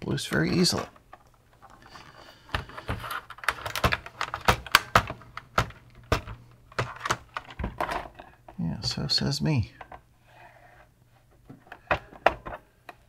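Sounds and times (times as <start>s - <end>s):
plastic case clicking and knocking: 2.5s - 9.0s.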